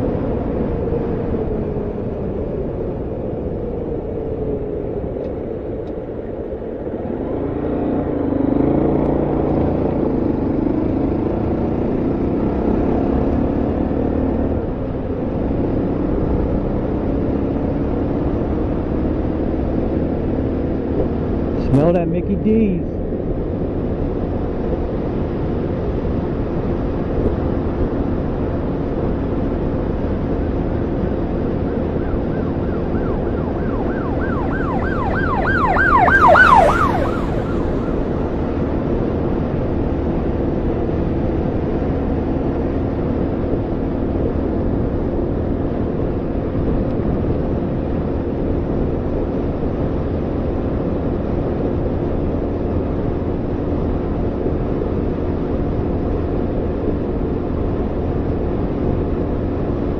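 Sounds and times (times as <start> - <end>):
motorcycle engine cruising: 0.0 - 59.9
emergency siren yelping: 31.3 - 39.4.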